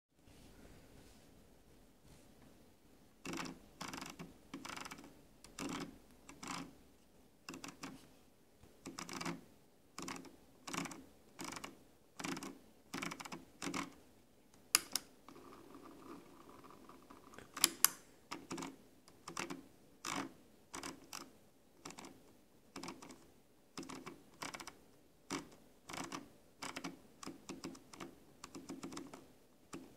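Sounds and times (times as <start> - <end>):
mouse scroll wheel clicking: 3.2 - 6.8, 7.4 - 8.0, 8.8 - 9.4, 10.0 - 14.0, 14.6 - 29.9
sharp mouse clicks: 14.6 - 15.1.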